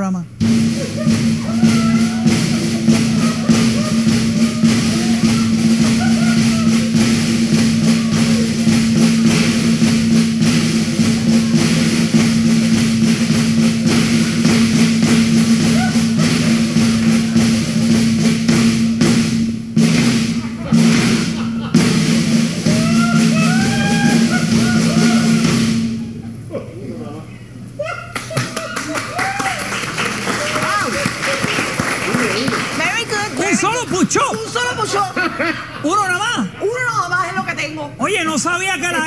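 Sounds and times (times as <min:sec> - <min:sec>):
entrance music with drum beat: 0:00.3 - 0:26.2
voices calling out: 0:00.4 - 0:18.3, 0:20.6 - 0:38.0.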